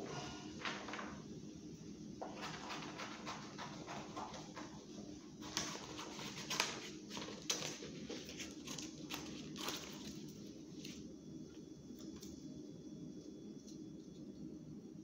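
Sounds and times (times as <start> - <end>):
paper rustling: 0.6 - 1.1, 5.4 - 11.0.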